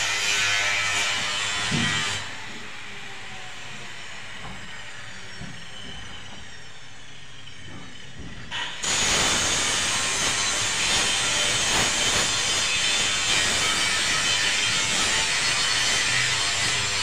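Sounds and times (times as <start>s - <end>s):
blade scraping plaster: 8.6s - 17.0s.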